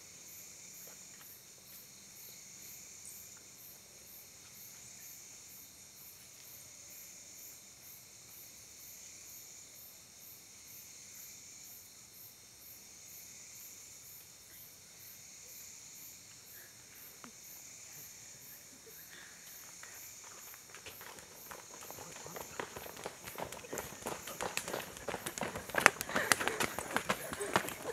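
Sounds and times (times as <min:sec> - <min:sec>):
night insects chirring: 0:00.0 - 0:27.9
running footsteps on pavement: 0:19.6 - 0:27.9.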